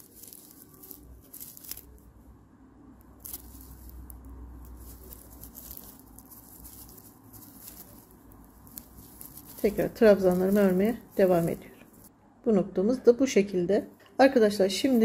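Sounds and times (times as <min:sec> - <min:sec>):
yarn crackling and rustling: 0:00.0 - 0:12.1, 0:14.6 - 0:15.0.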